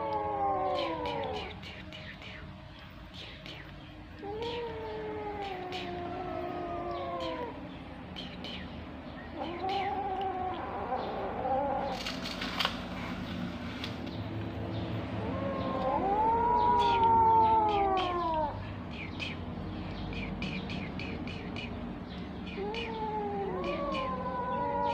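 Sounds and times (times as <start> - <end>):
kittens meowing: 0.0 - 2.0, 4.2 - 7.7, 9.3 - 12.3, 15.1 - 19.4, 22.5 - 24.9.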